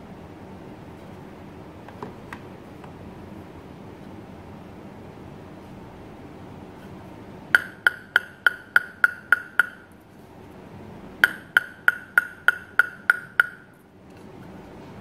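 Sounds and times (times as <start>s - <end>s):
table tennis ball tapping a blade: 7.6s - 9.9s, 11.2s - 13.8s.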